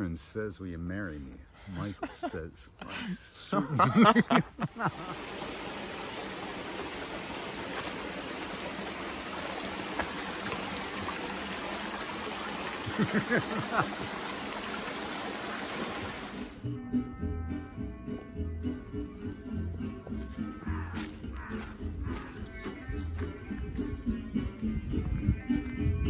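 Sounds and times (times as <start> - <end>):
running water rushing: 4.6 - 16.6.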